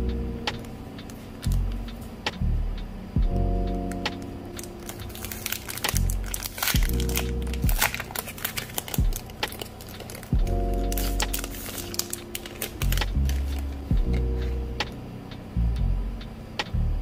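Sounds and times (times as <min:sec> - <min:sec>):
lo-fi chillhop music: 0:00.0 - 0:17.0
plastic sleeve crinkling: 0:04.5 - 0:14.6.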